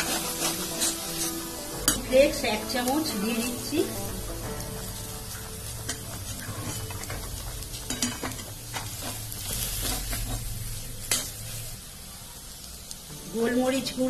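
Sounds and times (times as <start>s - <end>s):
metal spatula scraping a pan: 0.0s - 3.6s, 4.9s - 11.7s
oil sizzling: 0.0s - 14.0s.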